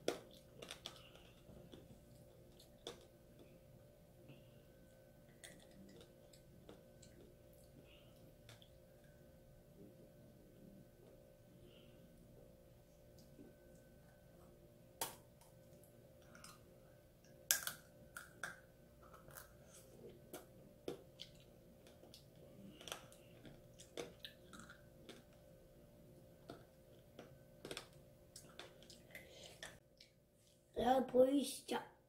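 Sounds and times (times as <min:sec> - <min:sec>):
candy coating crunching: 0:17.4 - 0:25.4.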